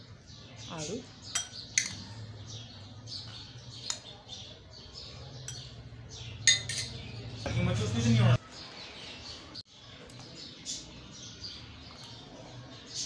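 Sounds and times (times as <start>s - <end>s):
small birds chirping: 0.0s - 13.0s
spoon clinking against glass: 1.3s - 2.0s, 5.4s - 5.8s, 6.4s - 7.0s.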